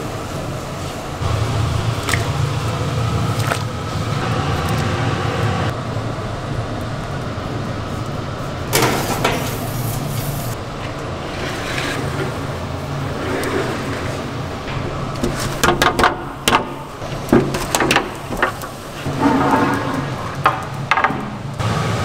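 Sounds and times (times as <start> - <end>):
low hum: 1.0 - 17.4.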